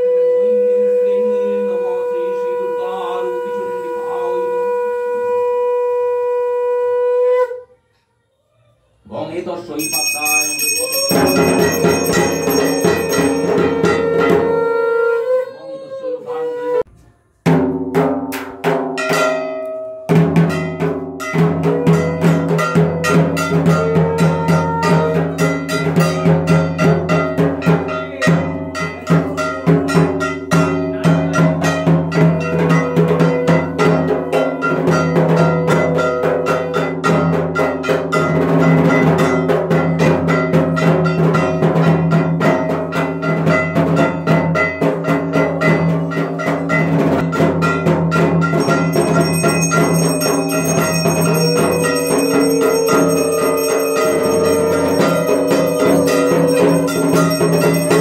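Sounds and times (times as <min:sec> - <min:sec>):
music with percussion beat: 0:09.8 - 0:14.7, 0:17.4 - 0:58.0.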